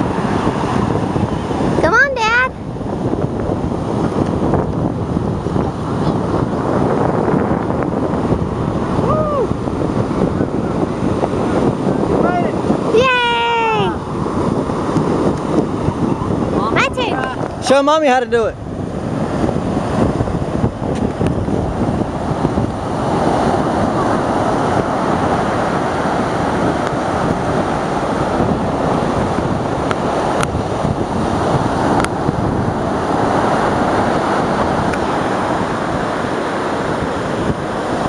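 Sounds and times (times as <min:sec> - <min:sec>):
ocean surf breaking: 0:00.0 - 0:38.0
wind buffeting microphone: 0:00.0 - 0:38.0.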